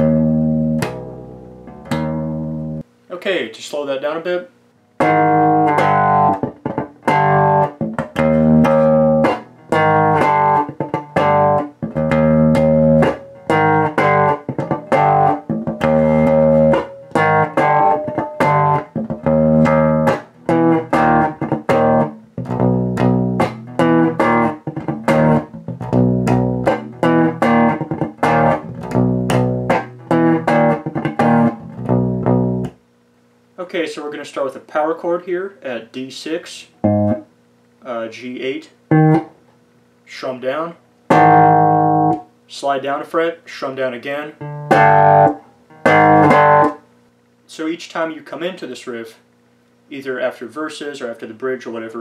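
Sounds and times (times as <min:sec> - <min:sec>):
electric bass power chords: 0:00.0 - 0:02.8, 0:05.0 - 0:32.8, 0:36.8 - 0:37.3, 0:38.9 - 0:39.3, 0:41.1 - 0:42.3, 0:44.4 - 0:46.8.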